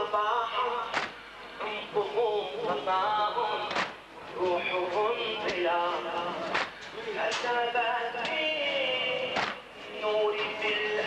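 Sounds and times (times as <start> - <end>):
chest slaps: 0.9 - 1.2, 9.4 - 9.6.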